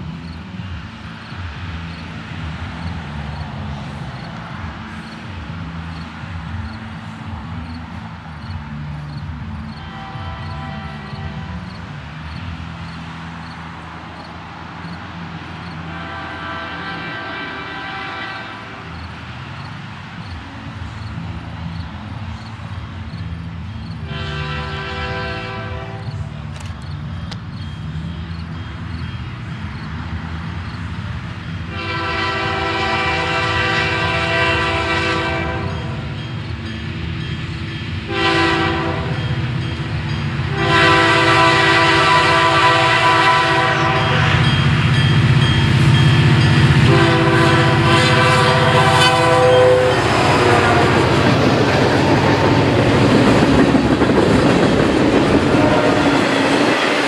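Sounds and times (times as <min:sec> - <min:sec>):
locomotive air horn blasts: 0:09.8 - 0:11.6, 0:15.9 - 0:18.9, 0:24.0 - 0:26.2, 0:31.7 - 0:36.2, 0:38.1 - 0:39.3, 0:40.5 - 0:44.7, 0:46.8 - 0:51.3, 0:55.5 - 0:56.4
train wheels clacking on rails: 0:34.7 - 0:57.0.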